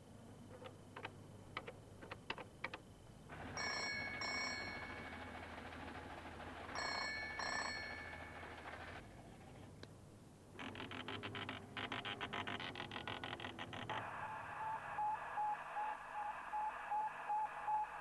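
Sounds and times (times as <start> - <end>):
telephone double ring: 3.3 - 5.6, 6.6 - 9.0.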